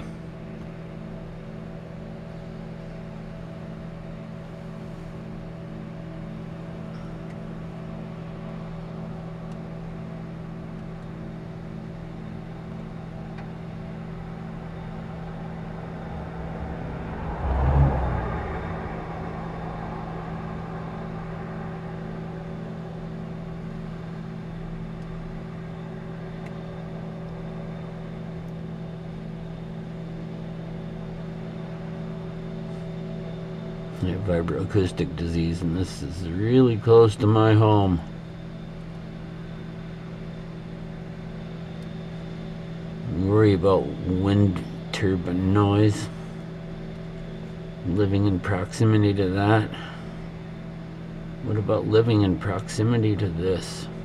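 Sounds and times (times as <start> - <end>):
industrial engines droning: 0.0 - 54.0
low rumble: 14.1 - 24.7.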